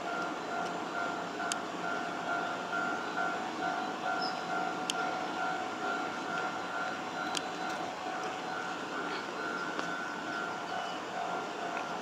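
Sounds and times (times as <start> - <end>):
electric train rumbling: 0.0 - 12.0
steady pulsing tone: 0.0 - 12.0.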